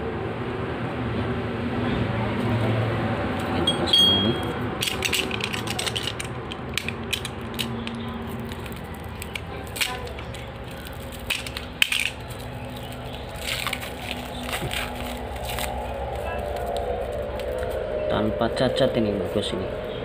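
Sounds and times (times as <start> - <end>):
plastic wrap crinkling: 4.9 - 17.8.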